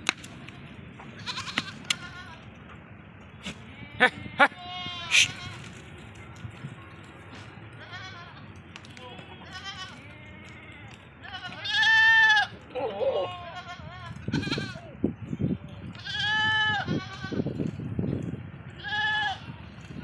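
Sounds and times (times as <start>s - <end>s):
goats bleating: 0.4s - 2.4s, 3.4s - 5.7s, 7.8s - 8.5s, 9.1s - 14.8s, 16.0s - 17.4s, 18.8s - 19.5s.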